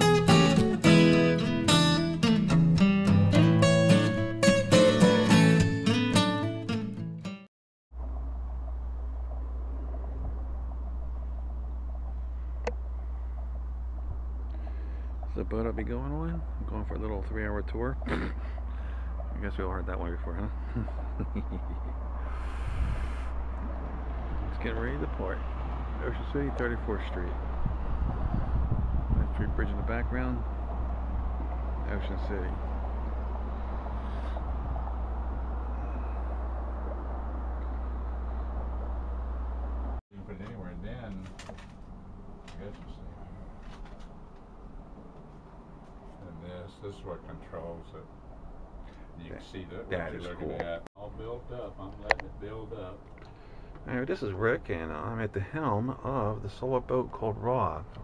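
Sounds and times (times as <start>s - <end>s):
wind rumble on microphone: 8.0s - 14.5s, 20.7s - 40.0s.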